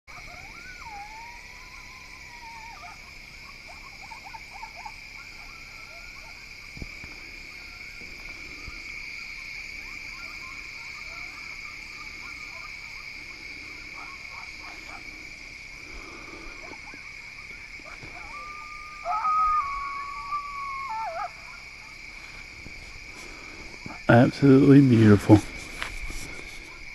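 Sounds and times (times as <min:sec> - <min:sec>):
faint frog calls: 0:00.1 - 0:26.9
frogs trilling: 0:00.1 - 0:26.9.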